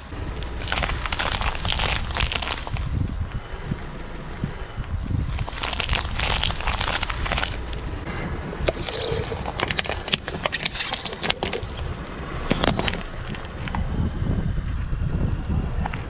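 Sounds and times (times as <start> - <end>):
low steady rumble: 0.0 - 16.0
tyre crushing small objects: 0.3 - 3.2, 5.2 - 8.0, 8.6 - 13.7.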